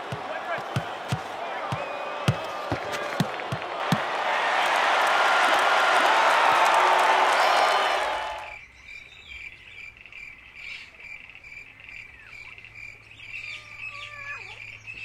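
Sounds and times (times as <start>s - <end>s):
crowd noise: 0.0s - 8.5s
crickets chirping: 8.5s - 15.0s.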